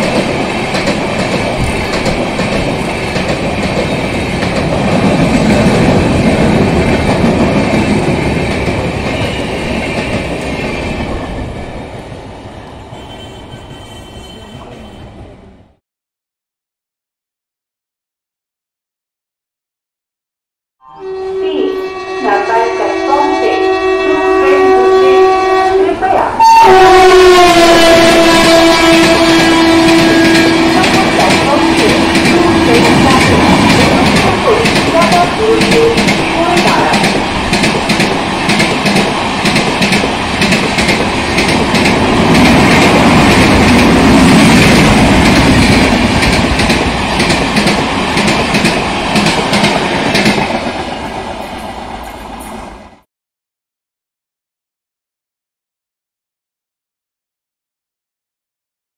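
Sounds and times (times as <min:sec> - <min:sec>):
train wheels clattering over rail joints: 0:00.0 - 0:09.3
train rushing past: 0:00.0 - 0:15.8, 0:21.0 - 0:53.1
train horn blowing: 0:20.8 - 0:33.3.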